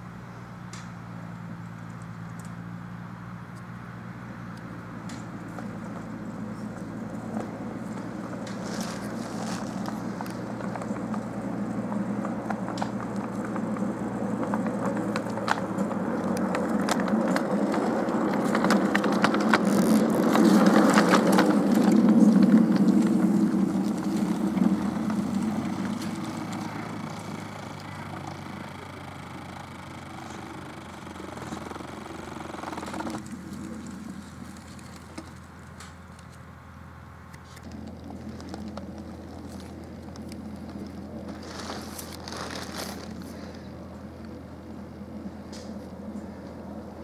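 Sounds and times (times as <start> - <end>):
train wheels clicking over rail joints: 6.7 - 36.0.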